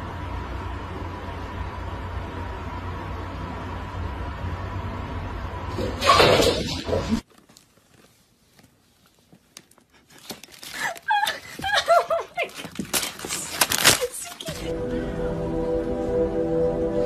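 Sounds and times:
plastic chip bag crackling: 0:09.2 - 0:11.4, 0:12.4 - 0:14.7.

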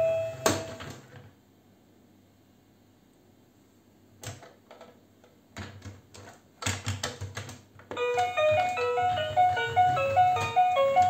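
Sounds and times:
bright electronic toy melody: 0:00.0 - 0:00.8, 0:08.0 - 0:11.0.

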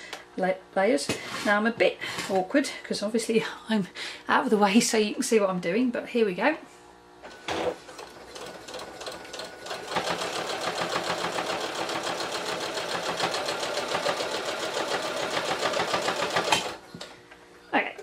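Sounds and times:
sewing machine stitching fabric: 0:07.4 - 0:16.8.

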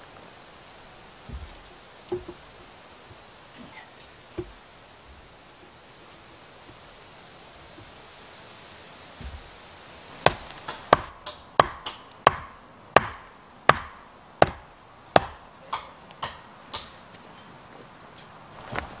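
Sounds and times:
axe chopping wood: 0:01.2 - 0:02.4, 0:09.2 - 0:09.6, 0:10.2 - 0:17.0.

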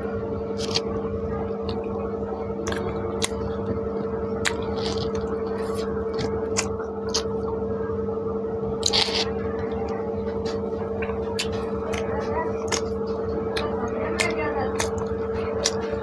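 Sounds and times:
low hum: 0:00.0 - 0:16.0
wet chewing: 0:00.6 - 0:01.0, 0:02.6 - 0:03.7, 0:04.4 - 0:07.5, 0:08.8 - 0:16.0.

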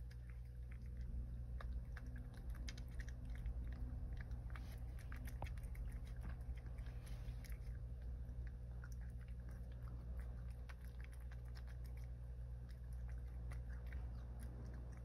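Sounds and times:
cat crunching dry kibble: 0:00.0 - 0:15.0
steady low hum: 0:00.0 - 0:15.0.

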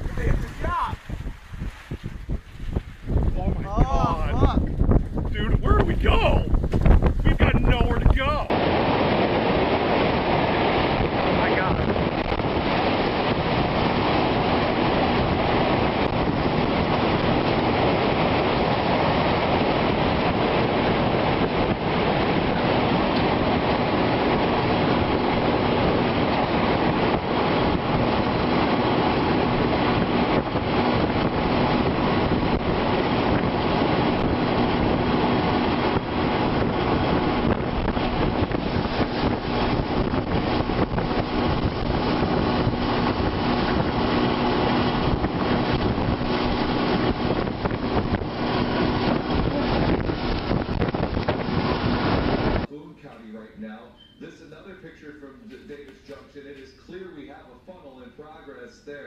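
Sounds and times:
tornado roaring wind: 0:00.0 - 0:52.7
wind buffeting microphone: 0:00.0 - 0:52.7.

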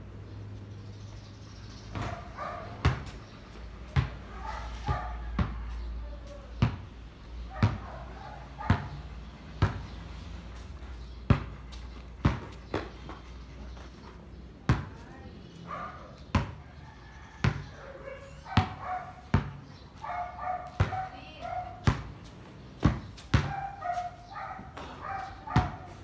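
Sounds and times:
basketball bouncing on concrete: 0:01.9 - 0:13.3, 0:14.0 - 0:15.2, 0:16.2 - 0:16.8, 0:17.4 - 0:17.8, 0:18.4 - 0:26.0.

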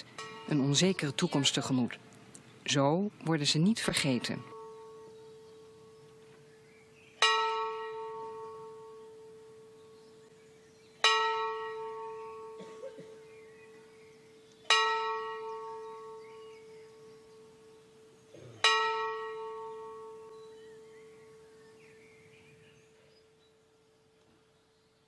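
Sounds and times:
large bell ringing: 0:00.0 - 0:01.1, 0:03.8 - 0:06.4, 0:07.2 - 0:10.4, 0:11.0 - 0:21.6.

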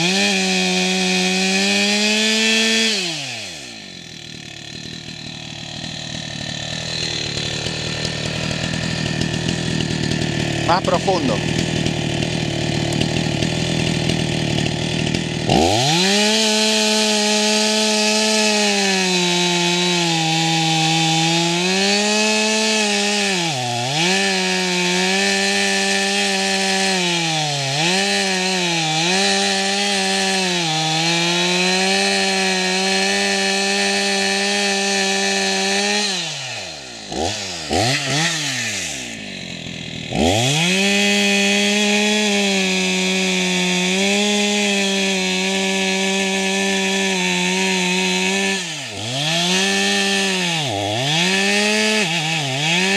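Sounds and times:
chainsaw cutting wood: 0:00.0 - 0:52.9.

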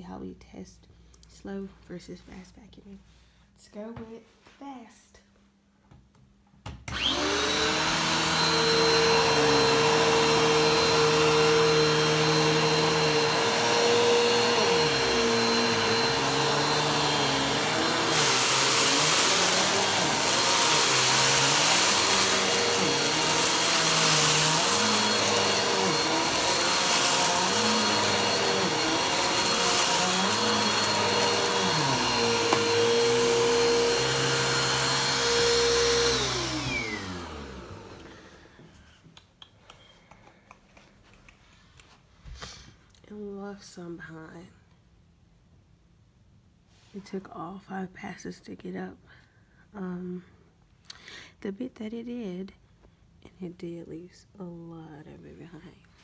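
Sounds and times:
vacuum cleaner motor whining: 0:06.9 - 0:38.8
vacuum pushed over carpet: 0:06.9 - 0:38.8.

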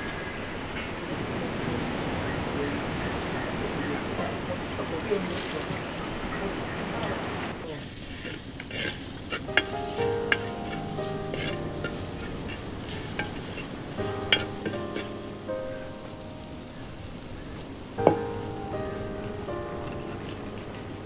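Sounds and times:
shallots sizzling in hot oil: 0:07.6 - 0:21.0.

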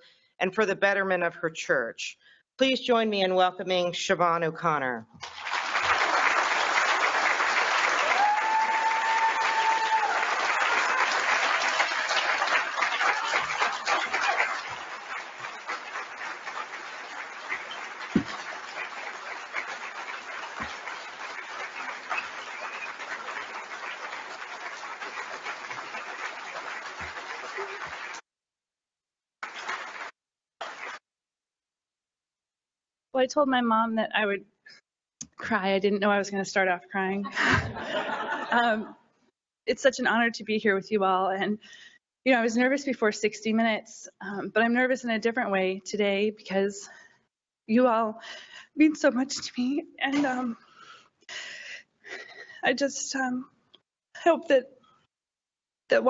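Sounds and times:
audience applauding: 0:05.2 - 0:28.2, 0:29.4 - 0:31.0.

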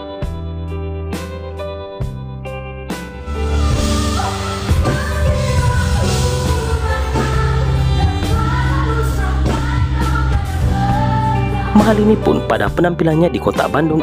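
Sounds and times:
live pop band with singing: 0:03.2 - 0:14.0.

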